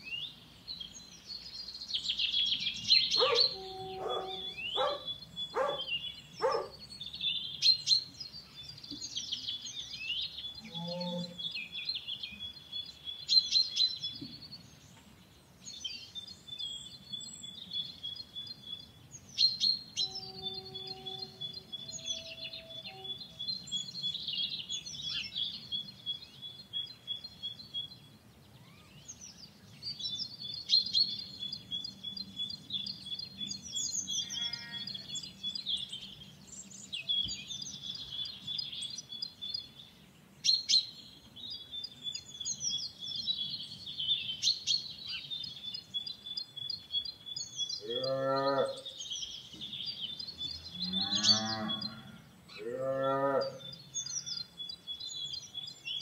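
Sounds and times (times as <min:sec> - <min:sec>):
small birds chirping: 0:00.0 - 0:56.0
cow mooing: 0:10.6 - 0:11.4, 0:34.2 - 0:34.9, 0:47.9 - 0:48.8, 0:50.8 - 0:53.7.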